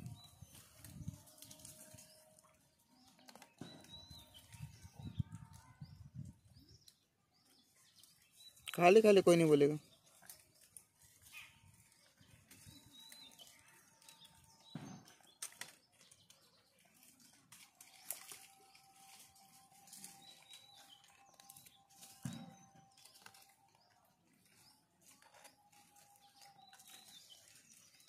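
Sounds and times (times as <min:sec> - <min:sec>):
rustles in dry leaf litter: 0:00.0 - 0:02.5, 0:07.8 - 0:14.6, 0:15.2 - 0:28.0.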